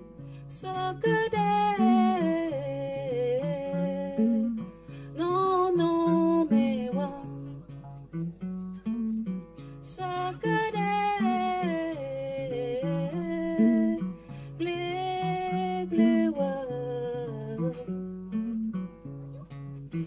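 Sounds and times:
acoustic and electric guitar: 0:00.0 - 0:20.0
woman singing: 0:00.4 - 0:07.8, 0:09.8 - 0:18.1.

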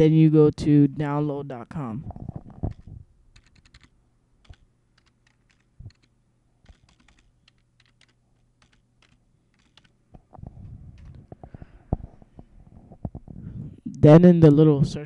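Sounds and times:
faint low hum: 0:00.0 - 0:15.0
keyboard key clicks: 0:02.6 - 0:10.0.

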